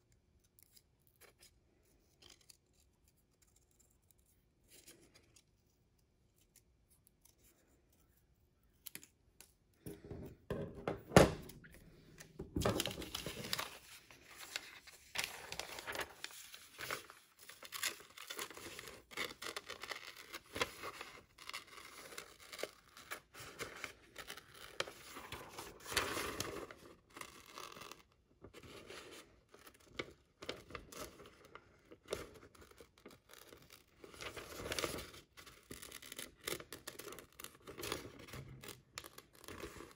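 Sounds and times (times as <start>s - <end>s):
newspaper rustling and crinkling: 11.8s - 39.9s.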